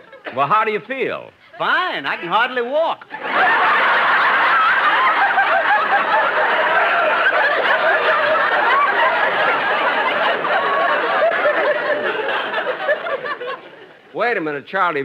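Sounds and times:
audience laughing: 0.0 - 0.5, 3.0 - 14.1.

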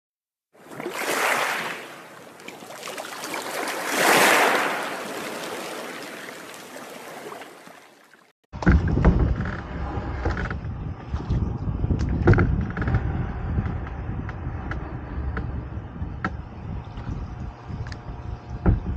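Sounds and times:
knocks on a boat: 8.6 - 9.6, 17.9 - 18.9
wind rumble on microphone: 8.6 - 18.9.

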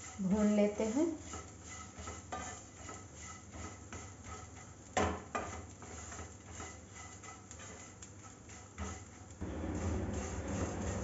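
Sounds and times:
spatula scraping a pan: 0.0 - 11.0
spatula knocking a pan: 1.2 - 9.1.

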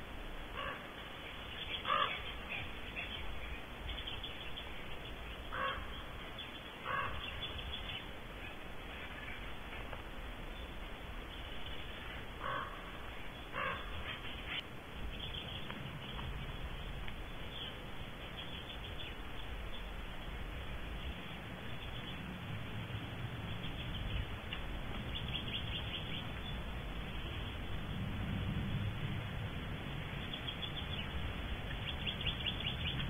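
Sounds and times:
steady hiss: 0.0 - 33.0
owl raspy calls: 0.5 - 0.9, 1.7 - 2.7, 5.4 - 6.1, 6.8 - 7.7, 12.4 - 14.6.

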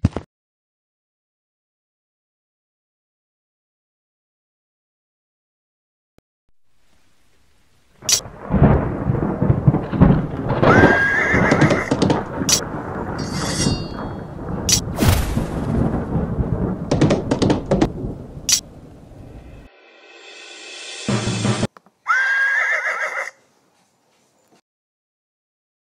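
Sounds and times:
rain: 6.7 - 19.7
sharp cracks: 8.0 - 19.7
thunder: 8.0 - 19.7
horse whinnying: 10.6 - 12.6, 22.0 - 23.4.

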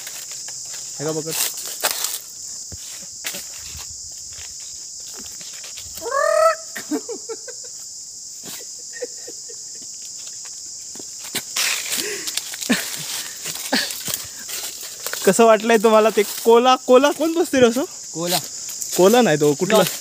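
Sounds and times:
insects shrilling: 0.0 - 20.0
rising vocal cry: 6.0 - 7.0.

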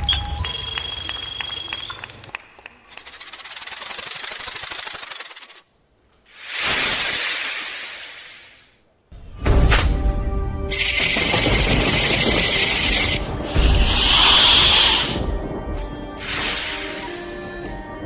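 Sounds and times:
rattling hiss: 6.3 - 8.8, 10.7 - 15.3, 15.9 - 17.8
swelling hiss effect: 6.3 - 8.8, 12.8 - 15.4, 16.2 - 17.8.

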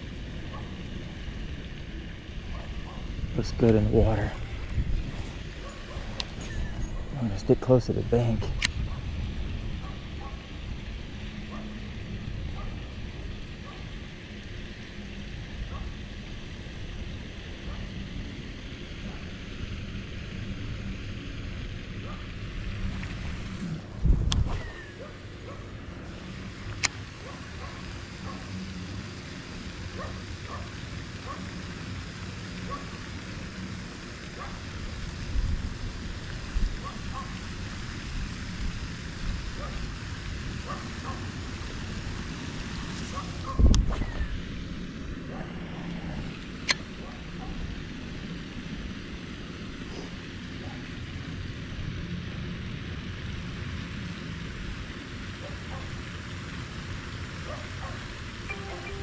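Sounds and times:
wind noise on microphone: 2.4 - 7.2, 8.3 - 13.8, 22.6 - 25.0, 35.0 - 37.4, 42.7 - 44.8.

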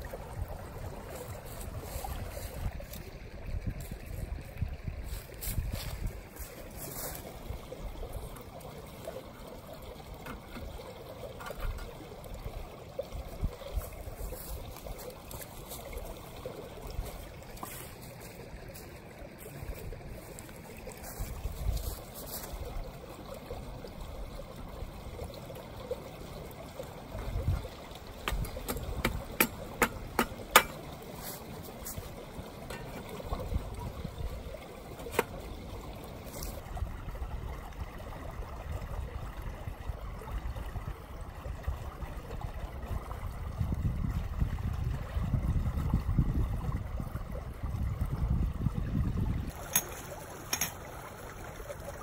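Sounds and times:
wind on microphone: 0.0 - 8.0, 21.0 - 22.8, 27.2 - 30.2, 33.0 - 34.6, 42.8 - 49.7
stream rushing: 0.0 - 43.7, 49.4 - 52.0.

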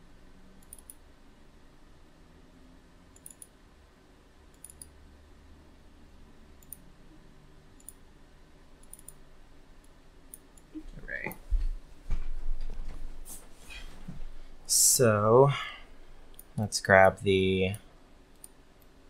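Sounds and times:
low steady background hum: 0.0 - 19.0
computer mouse clicks: 0.6 - 1.0, 3.1 - 3.5, 4.5 - 5.0, 6.6 - 6.9, 7.8 - 8.0, 8.8 - 9.2, 9.8 - 11.4, 16.3 - 16.6, 18.3 - 19.0.

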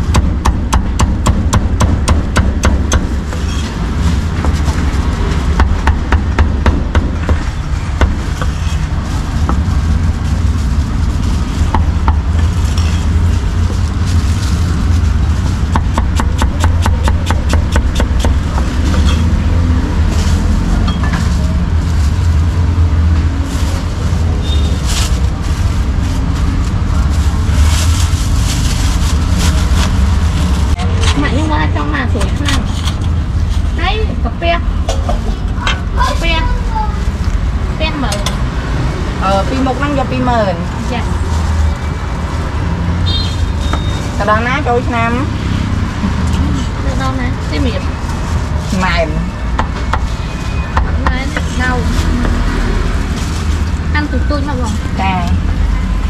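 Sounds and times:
low traffic rumble: 0.0 - 56.0.

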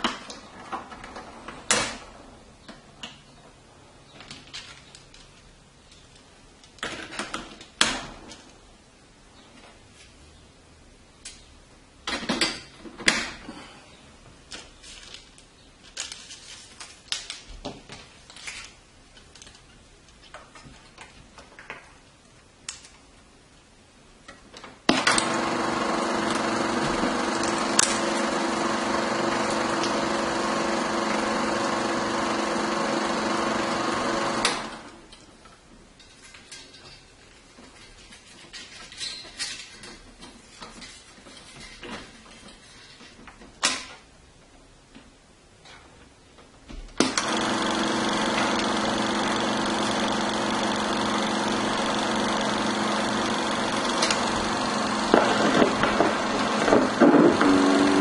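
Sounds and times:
film projector whirring: 24.9 - 35.2, 47.0 - 58.0.

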